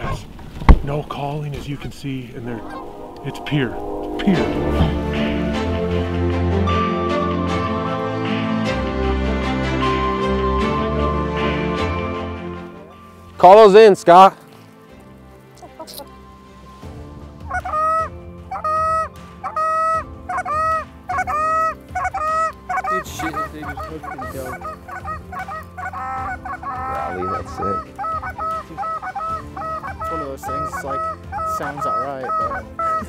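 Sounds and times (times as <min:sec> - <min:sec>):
goose call honks and clucks: 0:17.5 - 0:33.0.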